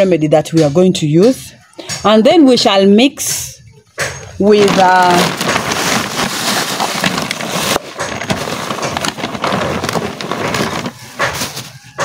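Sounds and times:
plastic bags rustling: 4.2s - 12.0s.

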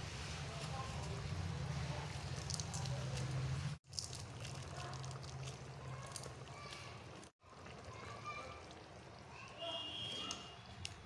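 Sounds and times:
gravy simmering and bubbling: 0.0s - 11.0s
small pops and ticks: 10.2s - 11.0s.

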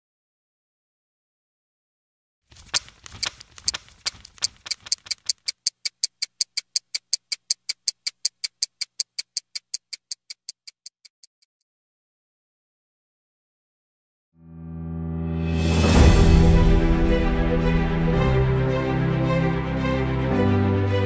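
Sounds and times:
clock mechanism ticking: 2.6s - 11.5s.

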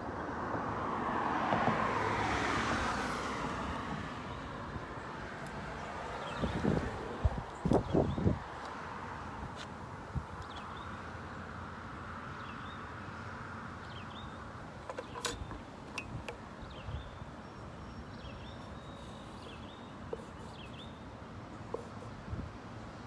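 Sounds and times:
road traffic hum: 0.0s - 23.0s
bird chirping: 10.4s - 11.0s, 13.8s - 22.2s.

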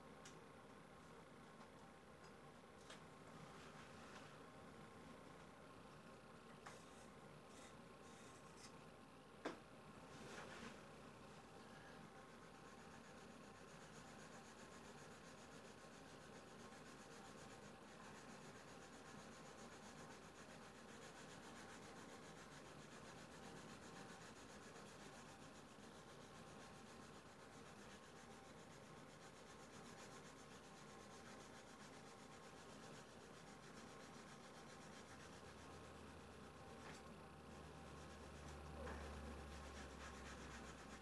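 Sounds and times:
drawing stick rubbing on paper: 12.4s - 41.0s.

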